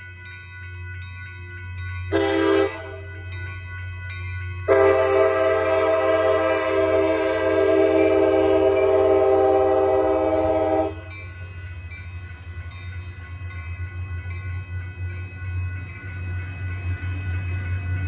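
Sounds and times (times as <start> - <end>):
crossing bells ringing: 0.0 - 18.0
train rolling past: 0.0 - 18.0
train air horn: 2.1 - 3.0, 4.7 - 11.1.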